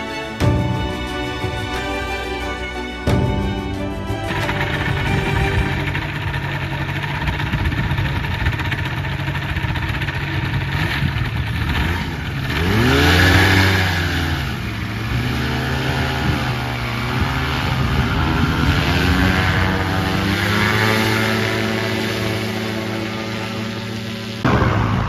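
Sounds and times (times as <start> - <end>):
engine and propeller revving: 5.2 - 25.0.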